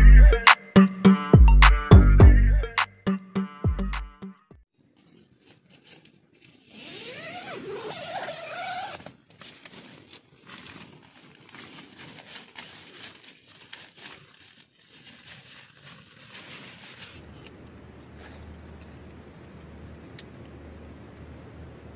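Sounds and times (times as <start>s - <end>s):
rustling tent fabric and gear: 4.8s - 19.0s
tent zipper pulled open: 6.4s - 13.3s.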